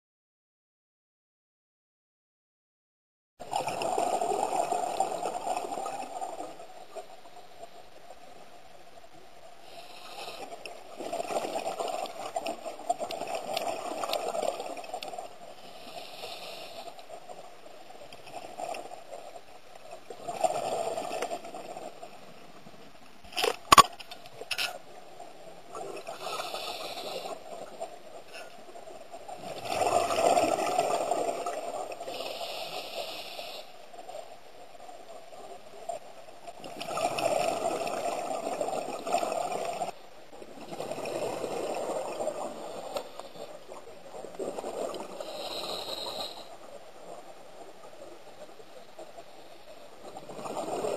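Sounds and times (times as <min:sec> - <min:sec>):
regulator inhalation hiss: 0:15.7 - 0:16.9, 0:26.2 - 0:27.4, 0:32.1 - 0:33.7, 0:45.2 - 0:46.5.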